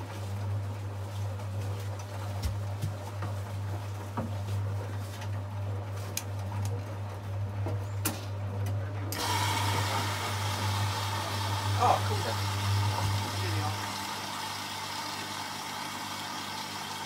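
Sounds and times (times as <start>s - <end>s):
washing machine humming: 0.0s - 17.0s.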